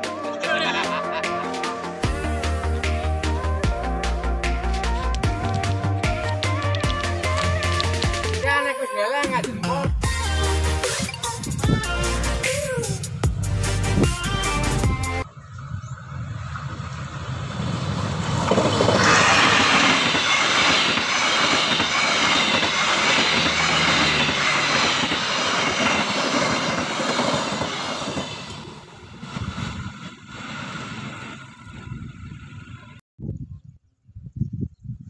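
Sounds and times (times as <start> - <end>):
train wheels rolling on rails: 4.9 - 8.4, 16.5 - 33.0
high ringing: 19.1 - 28.5.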